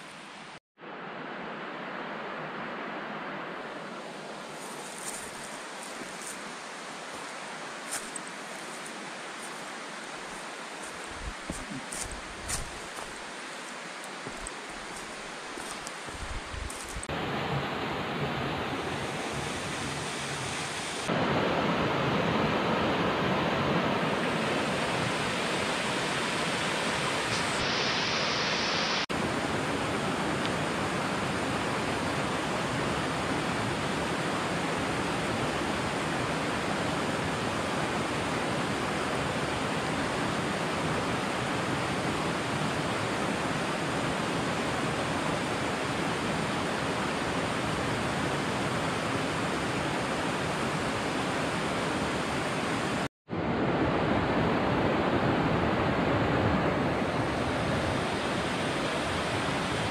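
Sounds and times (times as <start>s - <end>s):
water rushing in rocky stream: 3.8s - 21.2s.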